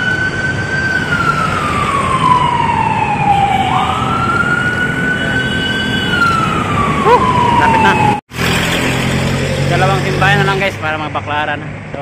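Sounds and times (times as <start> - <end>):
siren wailing: 0.0 - 8.2
road traffic: 0.0 - 12.0.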